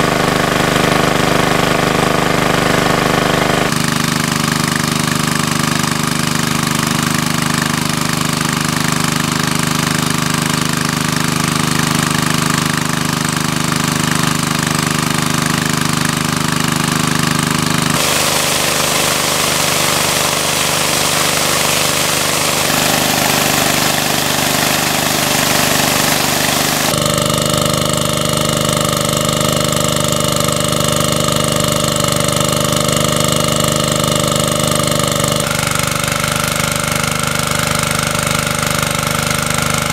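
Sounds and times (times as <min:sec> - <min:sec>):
water pump engine running: 0:00.0 - 0:39.9
water jet splashing: 0:18.0 - 0:27.0.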